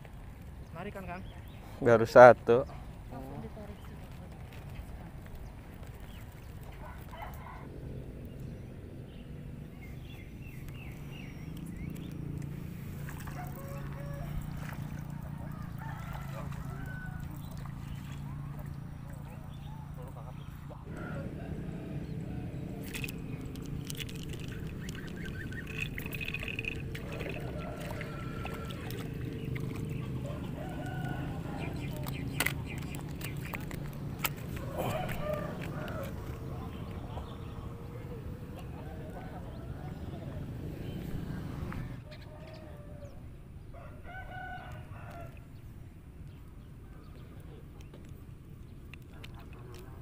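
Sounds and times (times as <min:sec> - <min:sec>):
steady low rumble: 0:07.6 - 0:13.3, 0:16.3 - 0:42.1
rooster crowing: 0:13.3 - 0:17.4, 0:27.0 - 0:29.1, 0:30.2 - 0:32.0, 0:34.6 - 0:36.5, 0:42.1 - 0:45.4
fish splashing at surface: 0:22.7 - 0:36.9.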